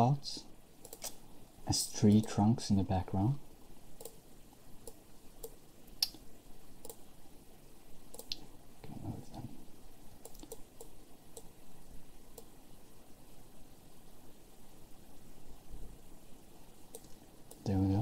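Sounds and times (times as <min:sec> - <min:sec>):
computer mouse clicks: 0:00.8 - 0:01.2, 0:04.0 - 0:04.2, 0:04.8 - 0:06.2, 0:06.8 - 0:07.0, 0:08.1 - 0:08.5, 0:10.2 - 0:11.6, 0:12.3 - 0:12.5, 0:16.9 - 0:17.8.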